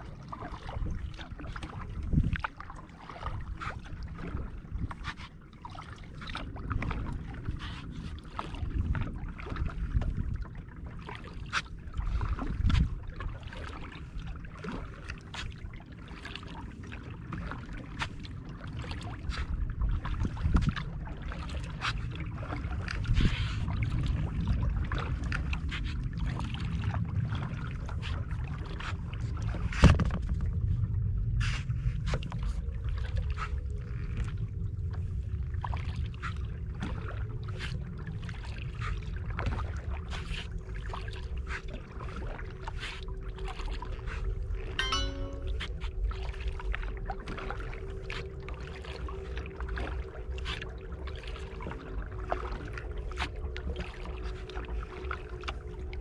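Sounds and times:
paddle splashing water: 0.0s - 30.8s, 31.4s - 56.0s
wind rumble on microphone: 0.0s - 44.8s
water lapping against hull: 0.0s - 56.0s.

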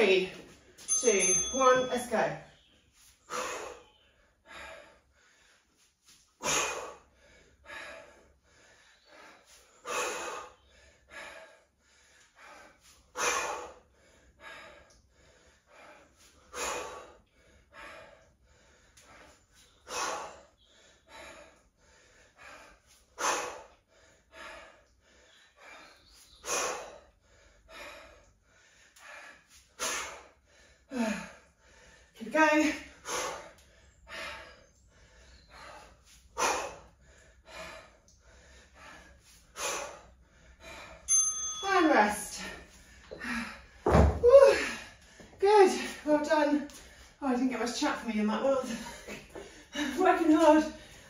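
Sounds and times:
person breathing hard: 3.2s - 32.2s, 32.8s - 41.1s, 42.3s - 43.9s, 50.7s - 51.0s.

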